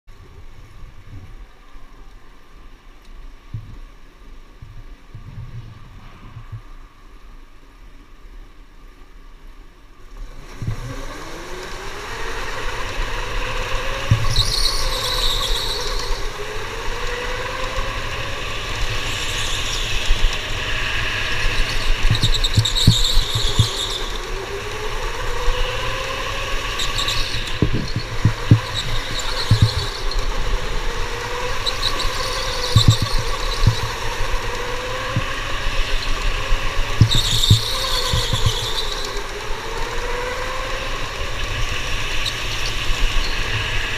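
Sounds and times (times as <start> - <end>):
electric motor whine: 10.3 - 43.9
tyres squealing: 13.9 - 16.2, 21.4 - 24.3, 26.0 - 36.3, 37.0 - 39.3.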